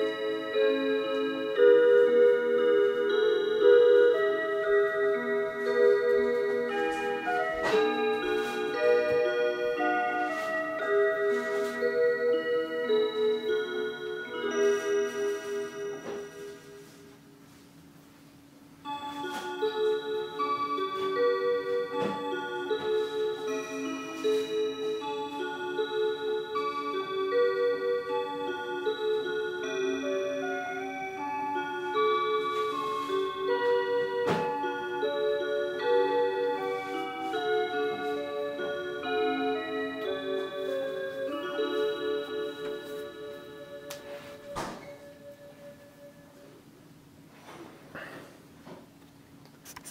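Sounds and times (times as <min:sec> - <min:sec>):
clock chime melody: 0:00.0 - 0:17.1, 0:18.8 - 0:46.7.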